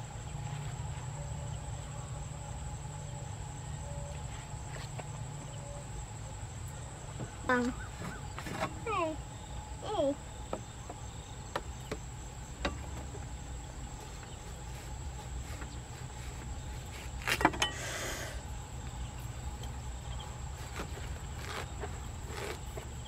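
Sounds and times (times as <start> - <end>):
blade rasping through rind: 20.5 - 23.0
knife chopping watermelon: 20.5 - 23.0.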